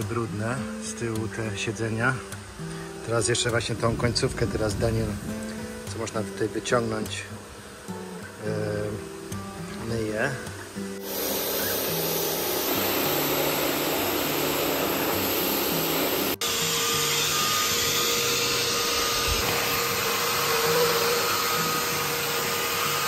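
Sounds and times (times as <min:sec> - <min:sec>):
pressure washer spraying water: 0:04.6 - 0:23.0
carpet cleaner motor whine: 0:11.0 - 0:23.0.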